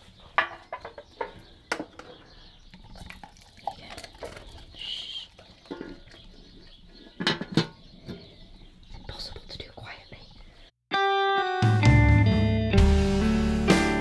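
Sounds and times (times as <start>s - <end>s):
metal bin lid clattering: 7.2s - 8.3s.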